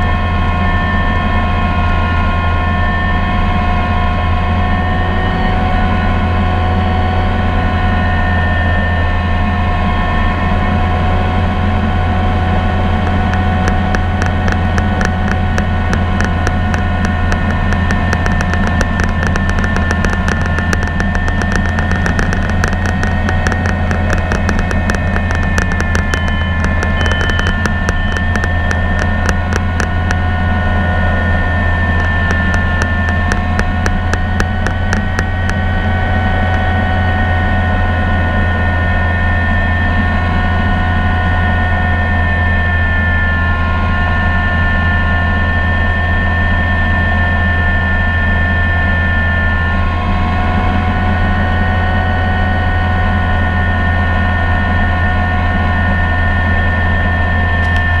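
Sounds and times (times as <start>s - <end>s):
helicopter whine: 0.0s - 42.4s
helicopter rotor and engine drone: 0.0s - 58.0s.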